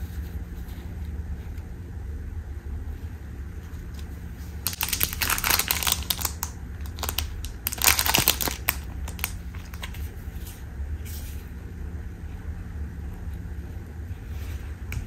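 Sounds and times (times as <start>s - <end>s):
low steady hum: 0.0s - 15.0s
plastic bags crinkling: 4.6s - 10.0s.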